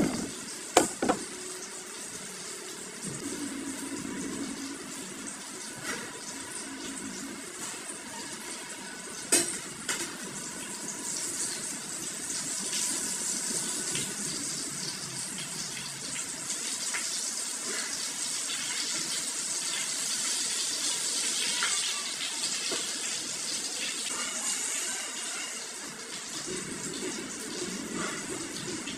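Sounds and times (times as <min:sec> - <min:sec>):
spatula scraping and knocking pan: 0:00.0 - 0:01.3
food sizzling in a pan: 0:00.0 - 0:28.9.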